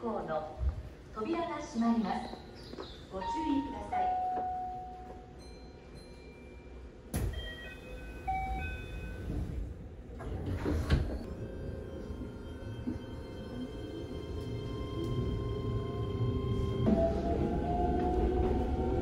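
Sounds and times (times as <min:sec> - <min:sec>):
train doors sliding shut: 0:07.1 - 0:11.4.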